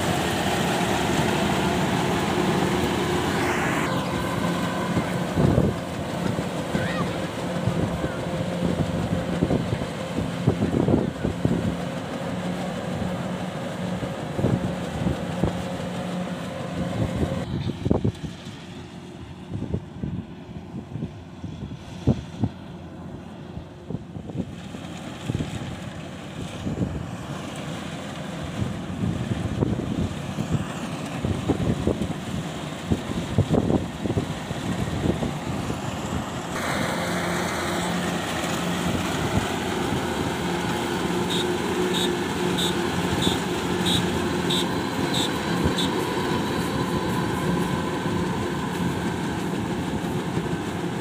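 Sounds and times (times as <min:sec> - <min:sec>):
combine harvester engine running: 0:00.0 - 0:51.0
wind buffeting microphone: 0:00.9 - 0:11.9, 0:28.4 - 0:36.5.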